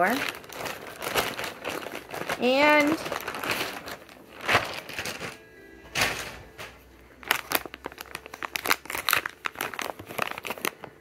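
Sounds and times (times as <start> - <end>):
foil pouch crinkling: 0.0 - 6.3, 7.2 - 11.0
plastic mailer bag rustling: 0.0 - 11.0.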